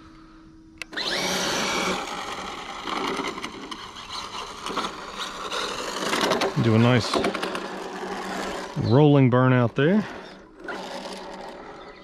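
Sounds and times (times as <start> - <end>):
faint motor hum: 0.0 - 12.0
click: 0.8 - 1.0
electric motor whine: 0.8 - 12.0
tyres spinning on asphalt: 1.0 - 12.0.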